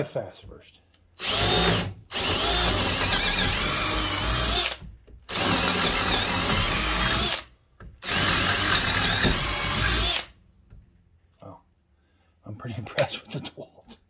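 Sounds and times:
cordless drill boring into wood: 1.2s - 10.4s.

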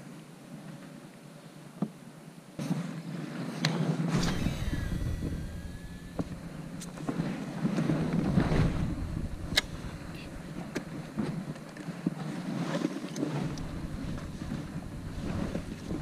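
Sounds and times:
spool whine sliding down: 4.2s - 11.8s, 13.4s - 16.0s
wind and water rumble: 4.2s - 16.0s.

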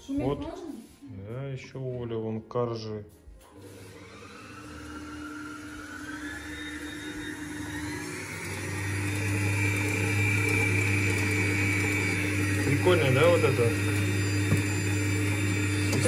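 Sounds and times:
stand mixer motor whine: 3.5s - 16.0s.

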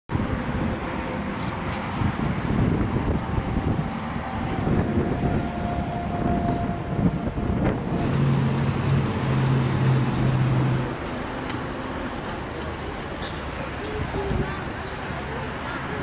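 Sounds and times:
wind buffeting microphone: 0.1s - 11.1s, 12.2s - 16.0s
traffic noise: 0.1s - 16.0s
low engine drone: 0.6s - 12.2s.

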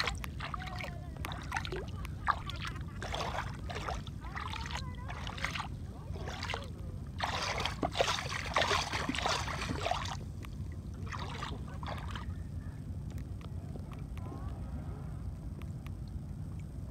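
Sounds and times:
water splashing against paddleboard: 0.0s - 12.5s
wind rumble on microphone: 0.0s - 16.9s.

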